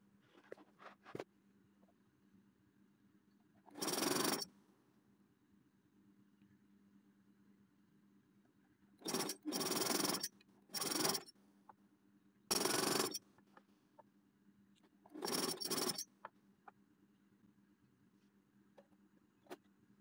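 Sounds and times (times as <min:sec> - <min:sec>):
electric sewing machine stitching: 0:03.7 - 0:04.5, 0:09.0 - 0:11.3, 0:12.5 - 0:13.2, 0:15.2 - 0:16.1.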